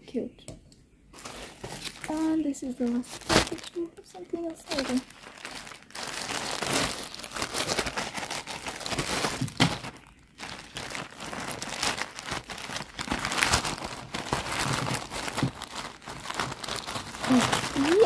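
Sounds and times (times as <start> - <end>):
plastic bag crinkling: 1.1 - 18.0
plastic bag snap: 3.1 - 3.8, 4.7 - 15.8.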